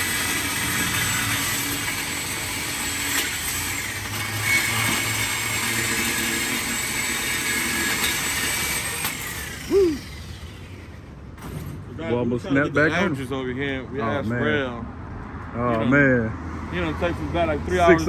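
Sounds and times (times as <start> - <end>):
power tool grinding metal: 0.0 - 11.1.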